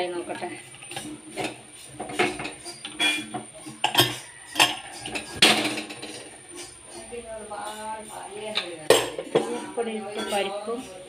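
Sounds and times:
metal lid clinking: 0:00.8 - 0:07.0, 0:08.5 - 0:10.8.

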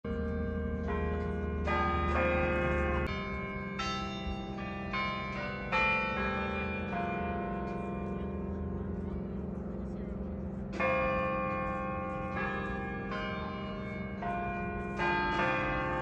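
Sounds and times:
carillon bells playing a carol: 0:00.1 - 0:16.0.

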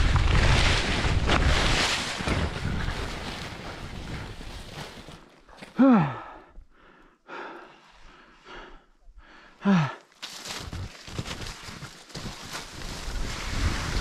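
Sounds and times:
person breathing hard: 0:05.6 - 0:10.2.

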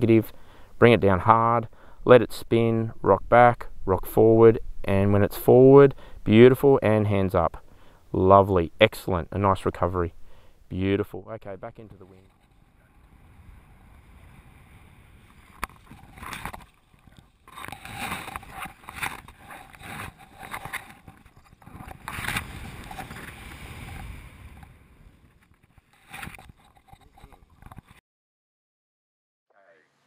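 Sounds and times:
wind rushing over camera: 0:12.2 - 0:28.0.

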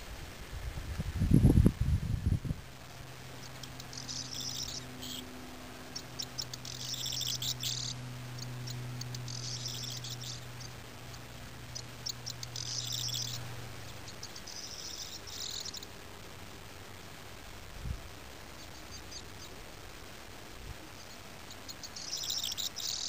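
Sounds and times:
low steady hum: 0:00.0 - 0:23.0
bird singing: 0:03.3 - 0:16.0, 0:18.5 - 0:19.6, 0:20.9 - 0:23.0.

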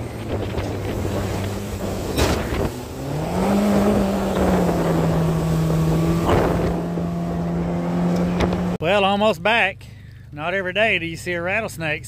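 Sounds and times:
outboard motor running hard: 0:00.0 - 0:08.8
water rushing along hull: 0:00.0 - 0:08.8
wind: 0:00.0 - 0:12.0.

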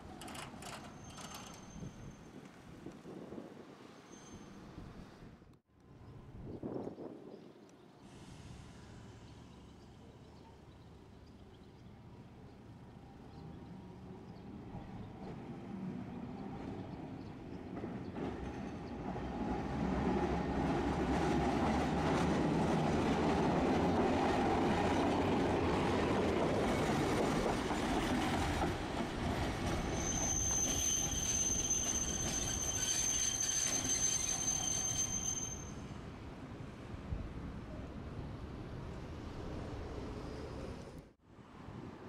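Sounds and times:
streetcar wheels rumbling on rail: 0:11.9 - 0:41.1
high-pitched wheel squeal: 0:29.8 - 0:36.0.

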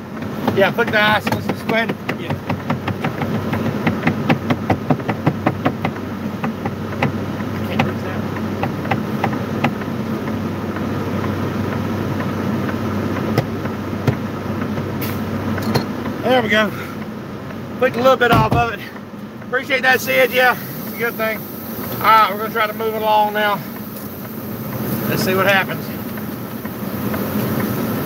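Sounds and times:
diesel engine idling: 0:00.0 - 0:28.0
sharp taps: 0:00.1 - 0:16.2.

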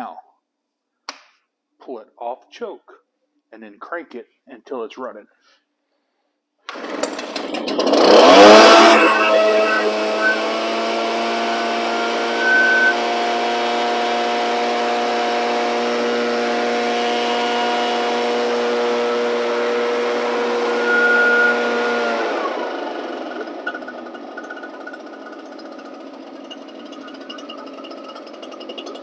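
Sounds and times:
blower two-stroke engine revving: 0:06.7 - 0:29.0.

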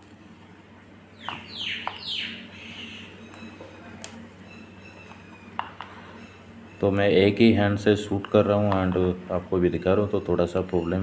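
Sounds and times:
bird calling falling notes: 0:01.2 - 0:06.9.

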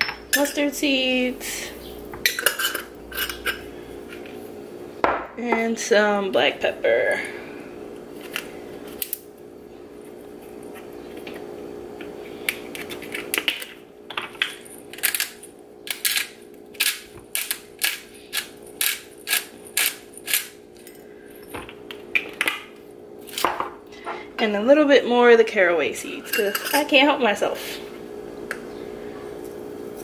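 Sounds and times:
pepper grinder grinding: 0:14.4 - 0:21.0.

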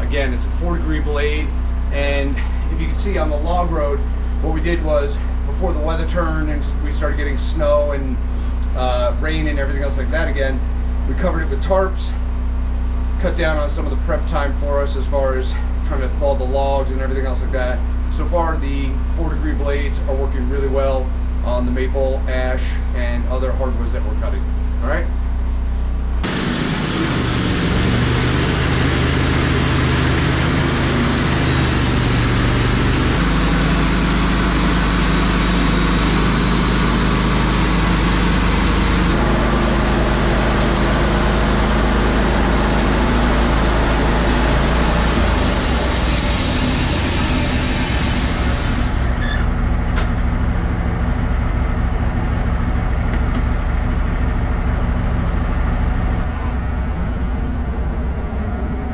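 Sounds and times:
engine running steadily: 0:00.0 - 0:58.9
band saw cutting log: 0:26.2 - 0:50.1.

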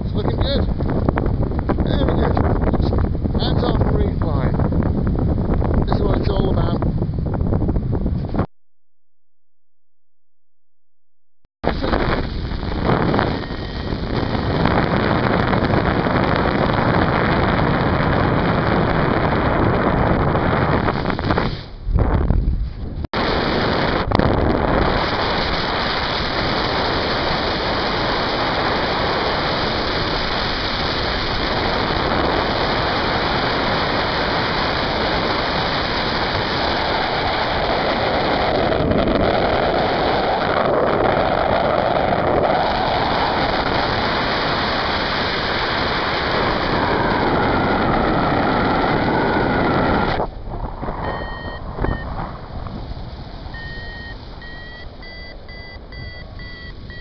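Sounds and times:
wind rushing over microphone: 0:00.0 - 0:08.5, 0:11.6 - 0:57.0
variometer beeping rising tones: 0:51.0 - 0:52.1, 0:53.5 - 0:57.0.

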